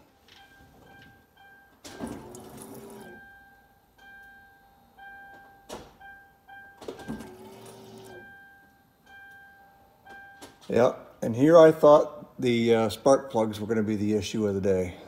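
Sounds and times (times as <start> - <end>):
electric fuel pump running: 2.0 - 3.2, 7.0 - 8.2.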